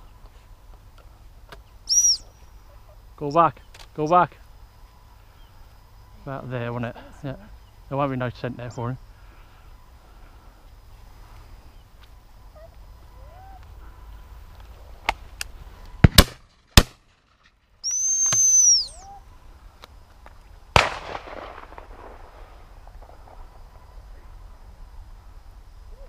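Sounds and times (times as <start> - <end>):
high steady whistle: 1.9 - 2.5, 17.8 - 19.2
shotgun shots with echo: 16.0 - 17.0, 20.8 - 23.4.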